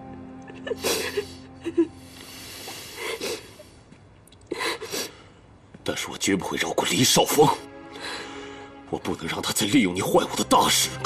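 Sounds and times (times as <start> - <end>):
faint background music: 0.0 - 3.9, 4.5 - 11.0
woman sobbing: 0.2 - 3.8, 4.5 - 5.2.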